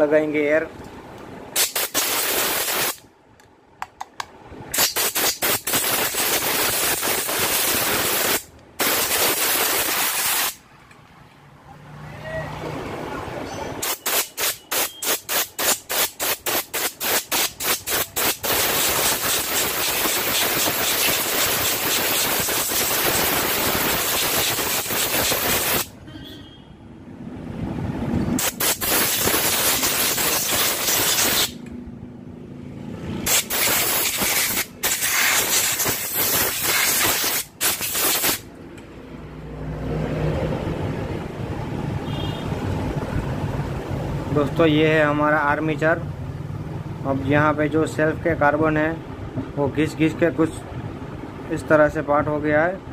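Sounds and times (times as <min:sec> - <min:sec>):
air blow gun hissing: 0:01.6 - 0:03.0, 0:04.7 - 0:10.6, 0:13.8 - 0:25.9, 0:28.4 - 0:31.6, 0:33.2 - 0:38.5.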